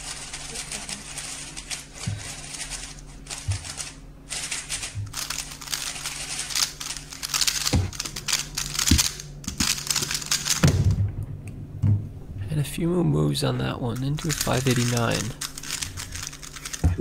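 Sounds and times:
puzzle cube plastic clicks: 5.2s - 10.6s, 14.0s - 17.0s.

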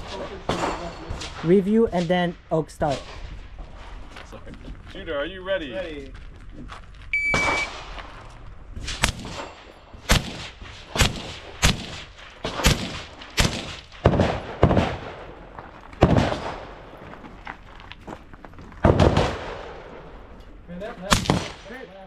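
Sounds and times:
shot timer beep: 7.1s - 7.7s
rifle shots: 7.2s - 8.2s, 8.8s - 17.0s, 18.8s - 20.2s, 21.0s - 21.8s.

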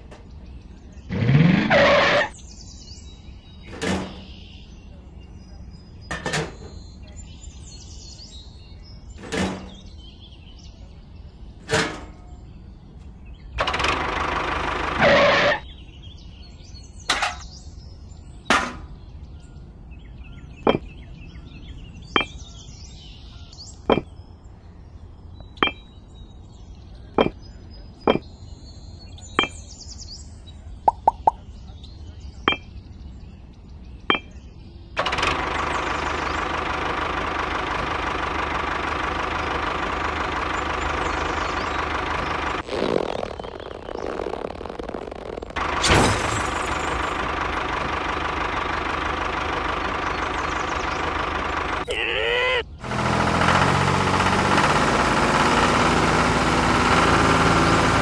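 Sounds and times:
small motor buzzing whine: 39.4s - 45.8s.

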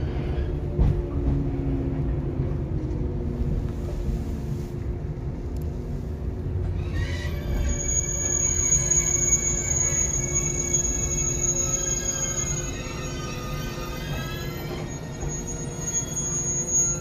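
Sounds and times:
train wheels rumbling: 0.0s - 17.0s
train jolt: 0.1s - 2.6s.

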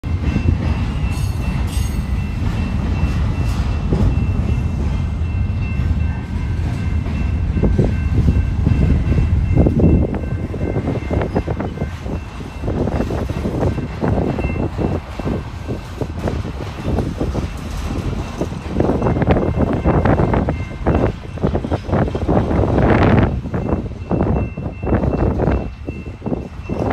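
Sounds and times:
freight cars rattling and clanking: 0.0s - 26.9s
train wheels rumbling on rail: 0.0s - 26.9s.

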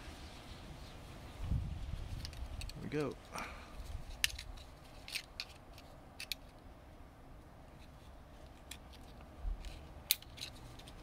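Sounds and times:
screwdriver clicking and scraping metal: 4.1s - 6.6s, 8.4s - 11.0s.

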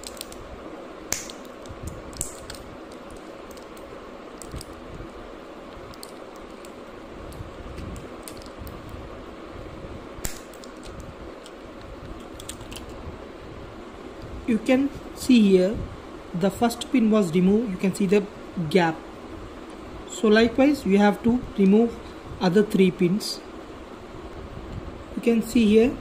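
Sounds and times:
sharp plastic clicks: 0.0s - 0.4s, 1.1s - 4.8s, 10.2s - 13.0s.

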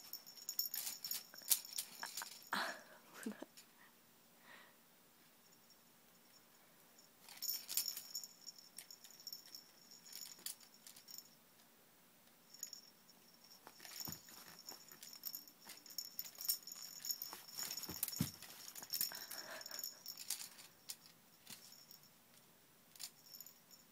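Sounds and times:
baby toys rattling and jingling: 0.0s - 2.6s, 7.2s - 11.2s, 13.6s - 22.0s.

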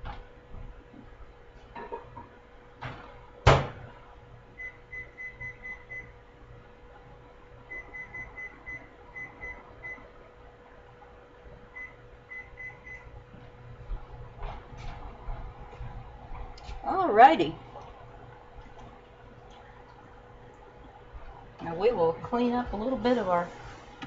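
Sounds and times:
microwave door banging shut: 2.8s - 3.9s
microwave keypad beeping: 4.6s - 6.1s, 7.7s - 10.0s, 11.7s - 13.1s.

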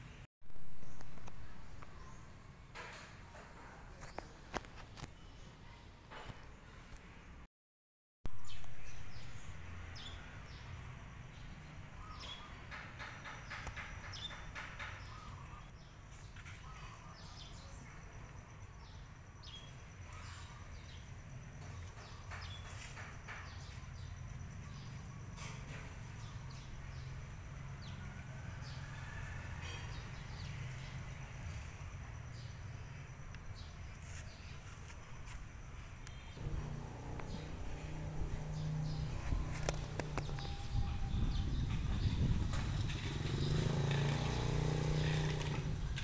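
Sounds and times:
bird chirps: 11.4s - 18.0s.

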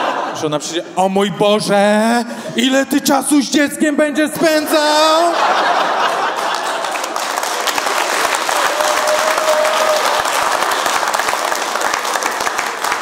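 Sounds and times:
person speaking: 0.4s - 5.4s
audience applauding: 5.8s - 13.0s.

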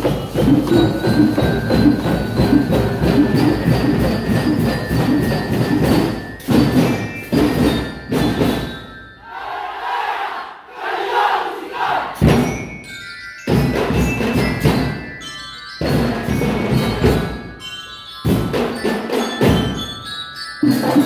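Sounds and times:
marching snare drums: 0.0s - 8.8s, 12.2s - 12.7s
hand drums: 0.0s - 8.9s, 12.2s - 17.6s, 18.2s - 21.0s
bell lyres ringing: 0.0s - 9.4s, 12.2s - 21.0s.

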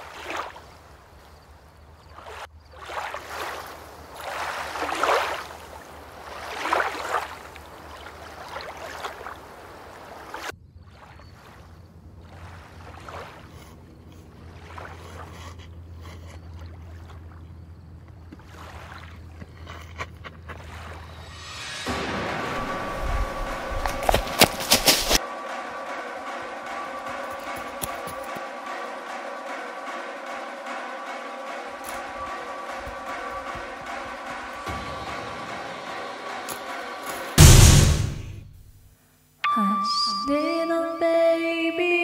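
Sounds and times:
low hum: 19.2s - 42.0s.

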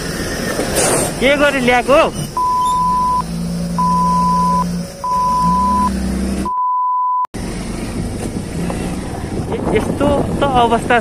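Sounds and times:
censor bleeps: 2.4s - 7.3s.

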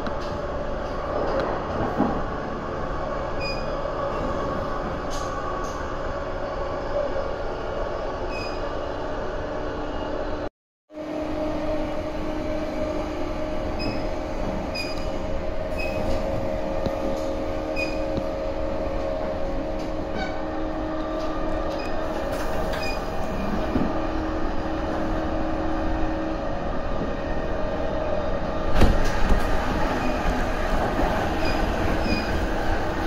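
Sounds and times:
train wheels rumbling on rail: 0.0s - 10.4s, 11.0s - 33.0s
train motor hum: 11.0s - 33.0s.

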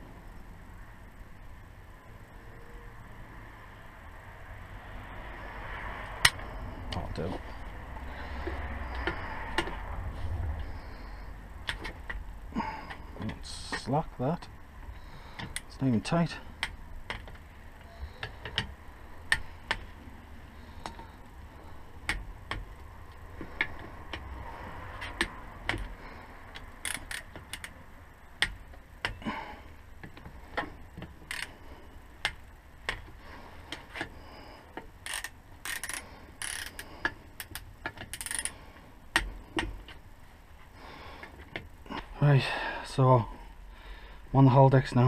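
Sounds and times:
hand ratchet clicking: 26.5s - 27.8s, 31.3s - 31.5s, 35.0s - 38.5s.

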